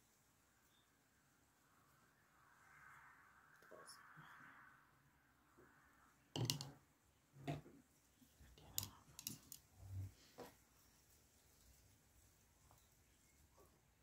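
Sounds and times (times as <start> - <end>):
tools set down on a table: 6.4 - 6.7
paintbrush knocking in a cup: 6.4 - 6.8.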